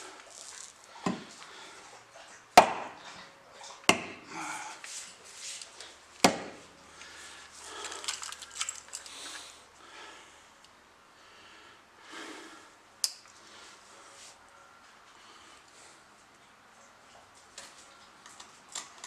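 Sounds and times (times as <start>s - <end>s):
axe striking wooden stump: 2.6s - 3.0s, 3.9s - 4.3s, 6.2s - 6.6s.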